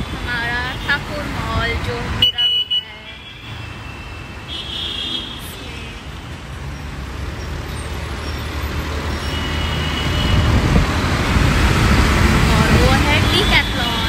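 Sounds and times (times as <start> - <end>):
road traffic: 0.0 - 14.0
tyres on the road: 0.0 - 14.0
truck rumbling alongside: 6.2 - 14.0.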